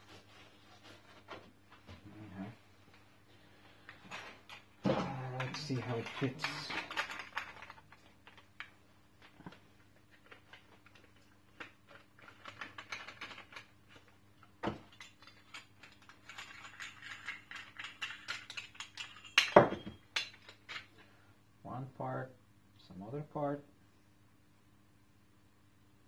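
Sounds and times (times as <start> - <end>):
small parts clicking and scraping: 3.8 - 21.1.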